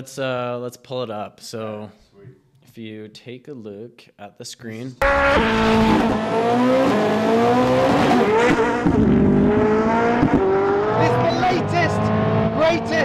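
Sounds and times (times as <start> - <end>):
sports car engine revving: 5.0 - 13.0.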